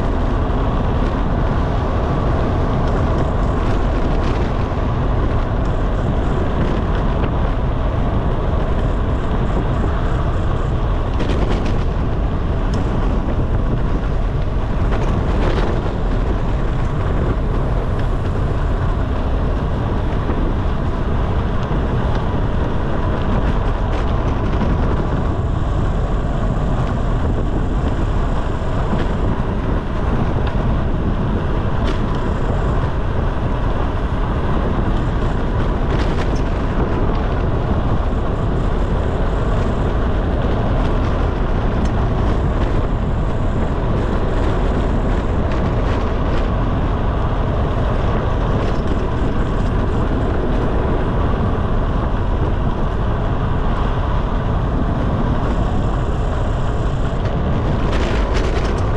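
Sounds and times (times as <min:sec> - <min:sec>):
tyre noise on road: 0:00.0 - 0:58.9
wind buffeting microphone: 0:00.0 - 0:58.9.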